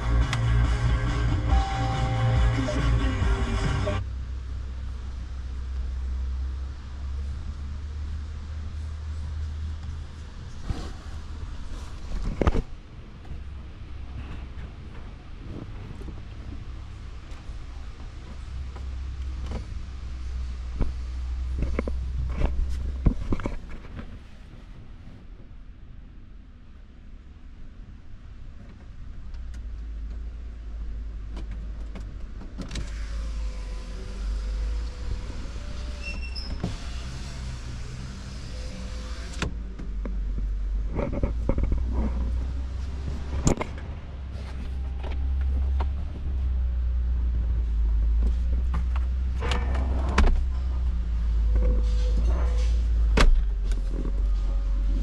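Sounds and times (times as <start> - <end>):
steady low rumble: 0.0 - 32.6, 37.1 - 55.0
electric window motor: 32.8 - 39.5.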